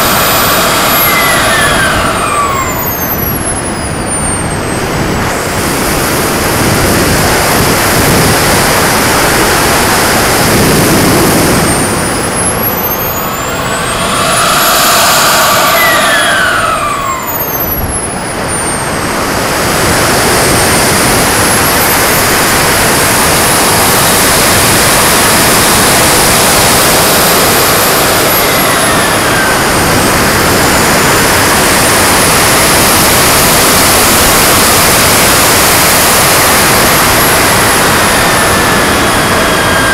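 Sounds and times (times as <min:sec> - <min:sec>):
jet turbine engine whining: 0:00.0 - 0:39.9
air rushing past camera: 0:10.3 - 0:19.3.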